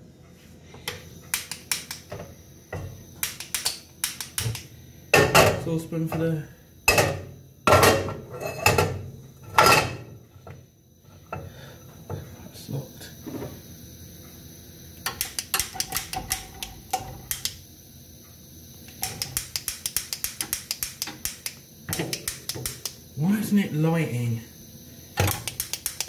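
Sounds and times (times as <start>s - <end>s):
gas burner igniter clicking rapidly: 1.3s - 2.2s, 3.2s - 4.7s, 15.0s - 17.6s, 19.0s - 23.0s, 25.2s - 26.0s.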